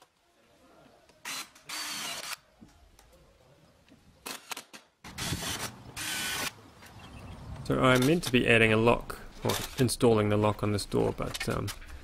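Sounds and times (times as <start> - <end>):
cordless drill whirring: 1.2 - 2.4, 5.1 - 6.5.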